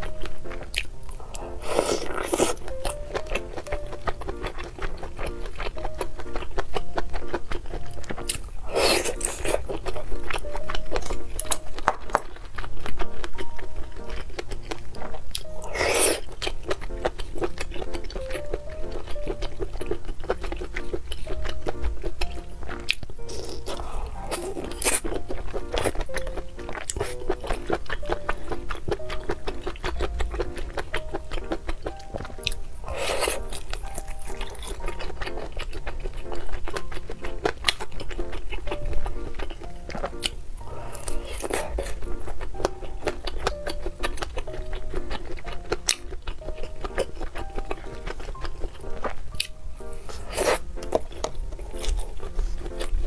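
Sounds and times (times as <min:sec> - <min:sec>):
background music: 0:00.0 - 0:53.0.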